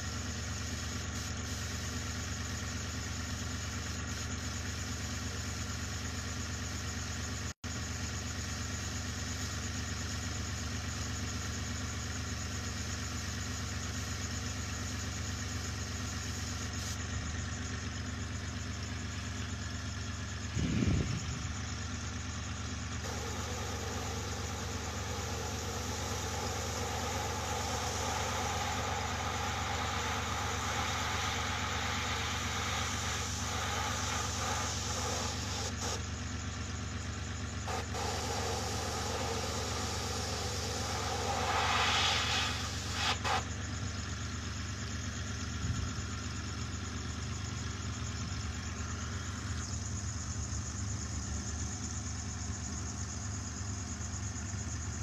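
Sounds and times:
air hissing through airbrush: 0.0 - 6.1, 13.0 - 17.0, 22.8 - 36.2, 37.1 - 43.7
air compressor running: 0.0 - 55.0.

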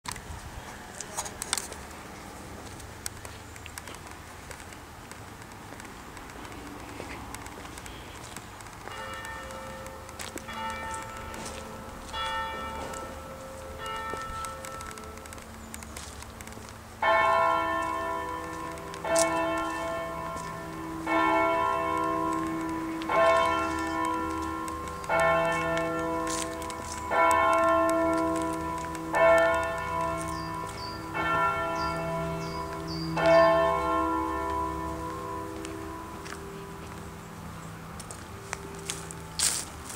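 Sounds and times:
church bell tolling: 8.8 - 15.3, 17.0 - 39.5.

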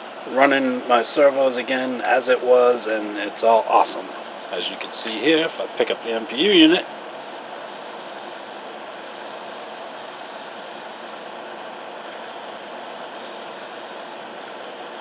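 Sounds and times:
servo motors whirring: 5.2 - 5.8, 7.1 - 11.4, 12.1 - 15.0.

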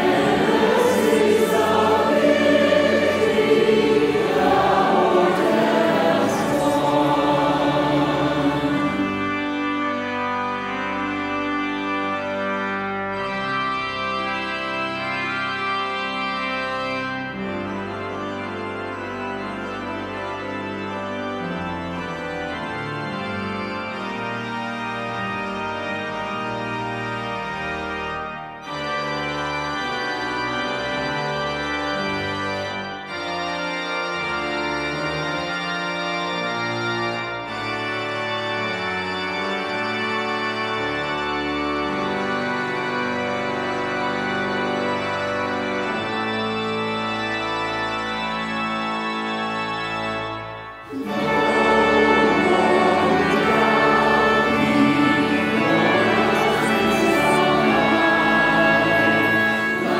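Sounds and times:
choir singing a hymn: 0.0 - 11.1, 50.8 - 59.9
organ playing sustained chords: 0.0 - 59.9.

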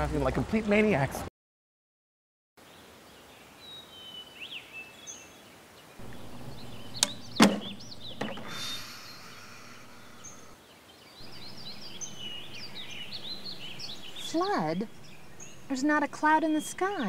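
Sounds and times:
birds chirping: 2.6 - 17.0
sharp knocks: 6.0 - 8.7.

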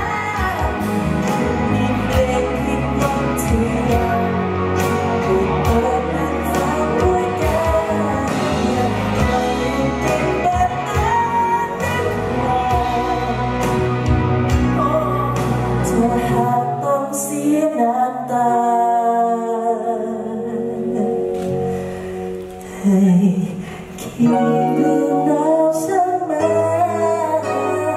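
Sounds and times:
man singing: 0.0 - 13.9, 22.8 - 27.9
live pop band playing: 0.0 - 27.9.

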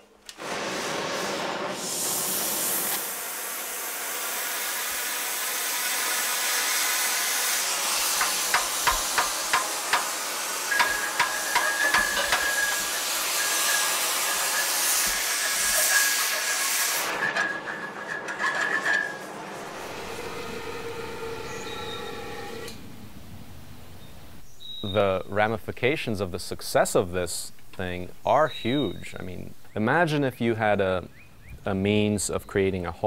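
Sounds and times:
cutting torch hissing: 0.3 - 17.7, 19.5 - 22.8
sharp metallic knocks: 8.2 - 13.0
thin steady whistle: 11.6 - 17.8, 19.8 - 22.8.

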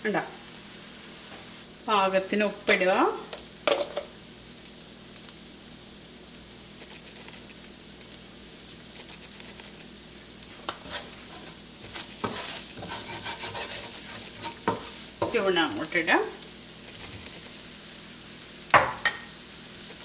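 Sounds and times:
masala sizzling in a frying pan: 0.0 - 20.0
wooden spoon scraping a pan: 10.5 - 15.5, 16.8 - 17.6.

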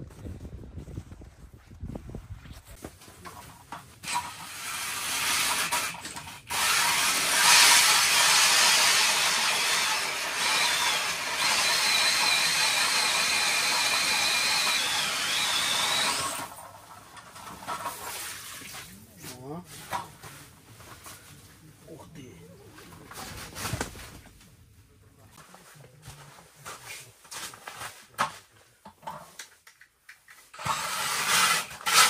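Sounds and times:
power ice auger drilling: 4.0 - 16.7, 30.6 - 32.0.

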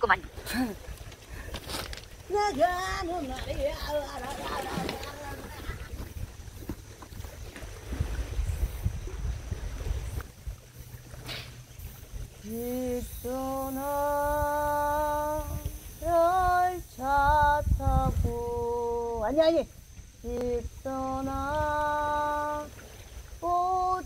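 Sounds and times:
wind on microphone: 0.0 - 24.0
woman humming a slow tune: 12.4 - 19.4, 20.2 - 24.0.

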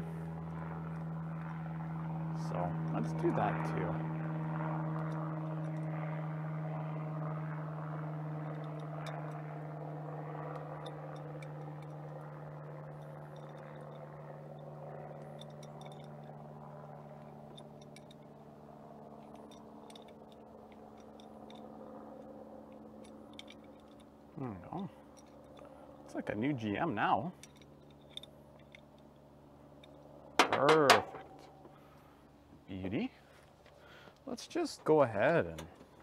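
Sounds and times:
low mechanical hum: 0.0 - 36.0
hands clicking and scraping hose fittings: 19.2 - 21.6.

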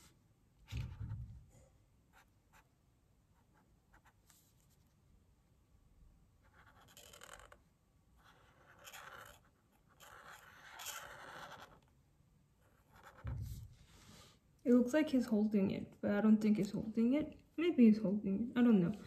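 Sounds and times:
marker scratching on paper: 6.4 - 7.6, 8.2 - 11.9, 12.6 - 13.7
soft low thump: 13.2 - 13.8.

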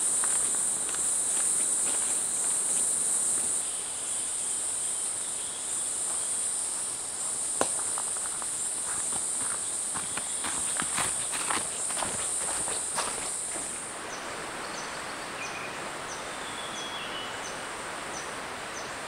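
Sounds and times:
insects droning: 0.0 - 19.0
footsteps on dry leaves: 0.2 - 3.6, 7.8 - 13.8.

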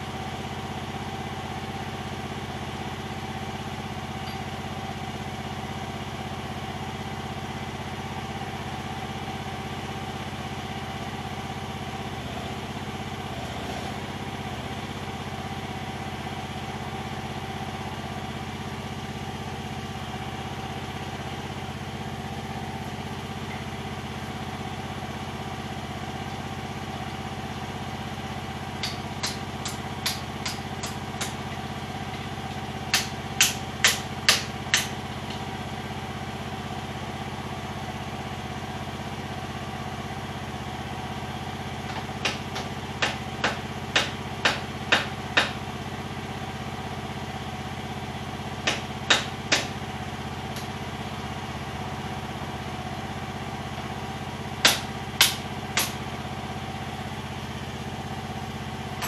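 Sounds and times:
excavator diesel engine idling: 0.0 - 59.0
hammer striking metal: 32.5 - 35.4, 42.2 - 45.6, 54.6 - 56.0.

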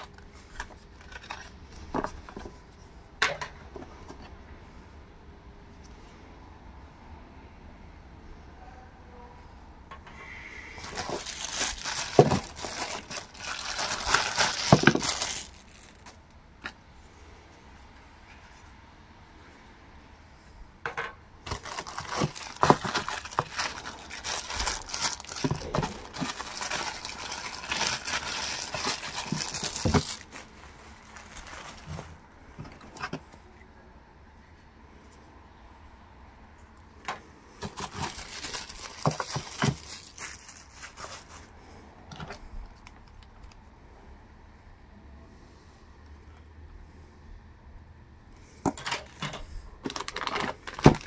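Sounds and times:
plastic bags crinkling: 0.0 - 2.6, 10.8 - 16.3, 21.4 - 33.2, 37.6 - 43.4, 48.6 - 51.0.

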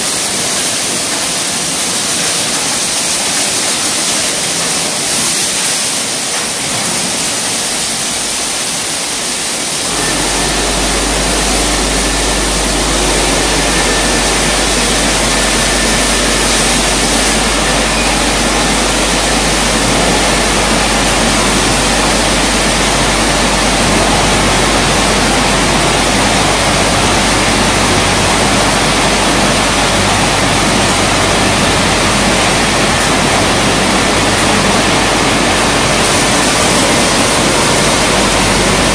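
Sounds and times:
car wash brushes and water spray: 0.0 - 38.9
low machine hum: 9.8 - 38.9.

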